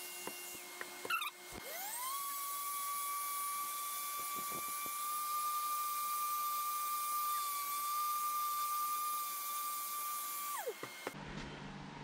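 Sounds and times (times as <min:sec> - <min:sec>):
orbital sander whining: 0:00.0 - 0:11.2.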